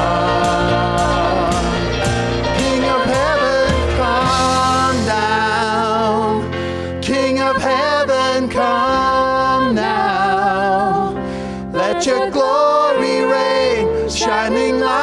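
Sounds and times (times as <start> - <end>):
acoustic guitar: 0.0 - 7.2
people singing: 0.0 - 15.0
piano: 0.0 - 15.0
worship band playing: 0.0 - 15.0.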